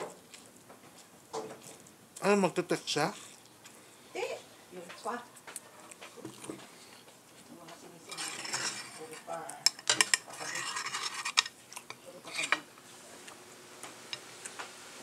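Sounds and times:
cutlery scraping a ceramic plate: 8.0 - 12.7.

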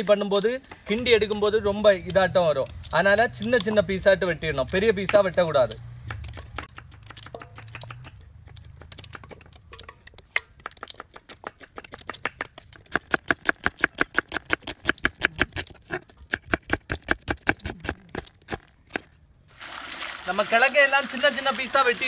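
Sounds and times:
knife chopping on wooden board: 4.7 - 19.1.

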